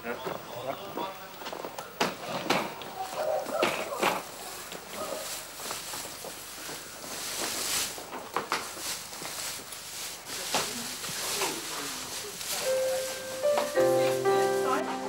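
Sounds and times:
faint voices: 0:00.0 - 0:05.6, 0:10.2 - 0:15.0
rustling straw: 0:03.0 - 0:15.0
steady music note: 0:12.7 - 0:15.0.

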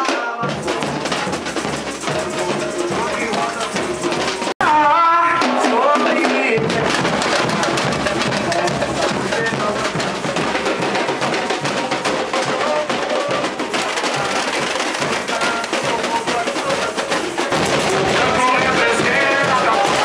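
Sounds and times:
people singing: 0:00.0 - 0:20.0
samba percussion band playing: 0:00.0 - 0:20.0
bass drums: 0:00.4 - 0:20.0.

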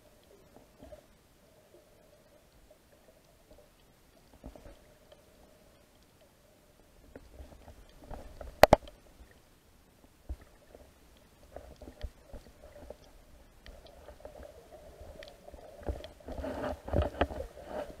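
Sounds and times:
faint underwater clicks and knocks: 0:00.0 - 0:18.0.

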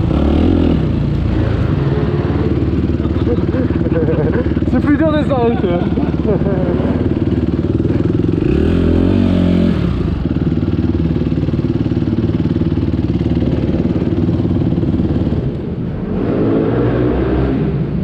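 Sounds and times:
motocross bike engine revving: 0:00.0 - 0:10.7.

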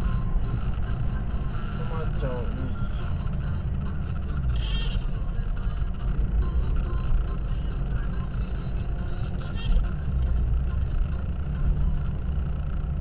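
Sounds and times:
car cabin road and engine rumble: 0:00.0 - 0:13.0.

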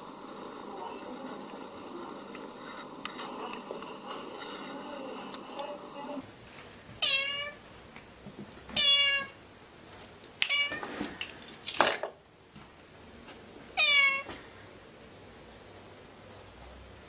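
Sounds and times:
cat meowing: 0:07.0 - 0:07.6, 0:08.8 - 0:09.4, 0:10.5 - 0:10.8, 0:13.8 - 0:14.3.

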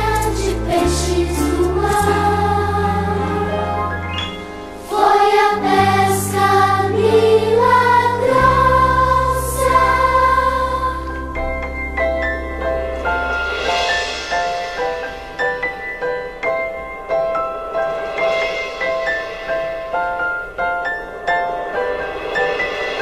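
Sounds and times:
choir singing: 0:00.0 - 0:03.8, 0:04.8 - 0:11.4.

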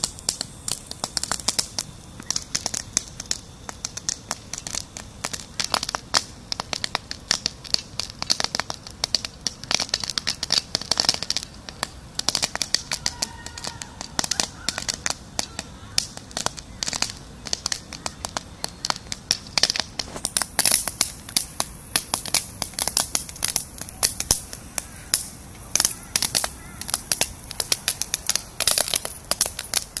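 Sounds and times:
popcorn popping in a pan: 0:00.0 - 0:30.0.

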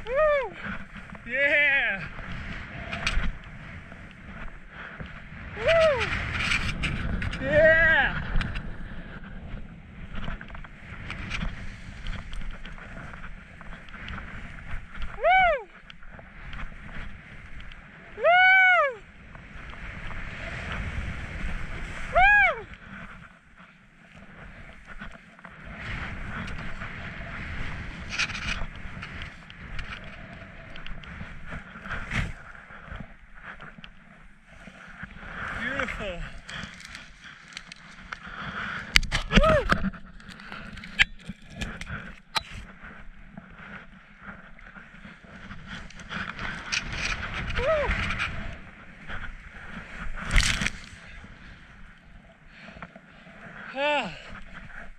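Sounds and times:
skis scraping over snow: 0:00.0 - 0:18.2, 0:19.0 - 0:54.9
wind rushing on microphone: 0:00.0 - 0:54.9
branches knocking against camera: 0:50.2 - 0:50.9.

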